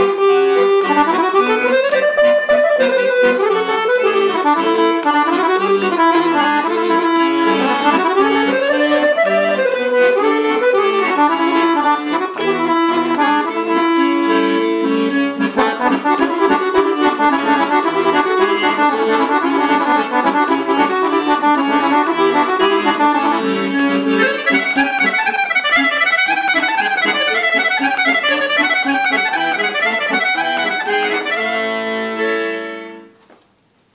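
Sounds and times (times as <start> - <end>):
button accordion melody: 0.0 - 33.2.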